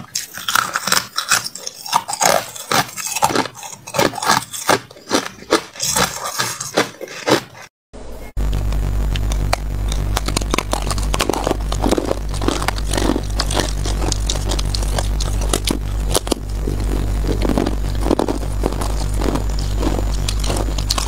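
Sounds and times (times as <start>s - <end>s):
crunching ice while chewing: 0.0s - 7.7s, 9.9s - 21.0s
steady low hum: 8.0s - 21.0s.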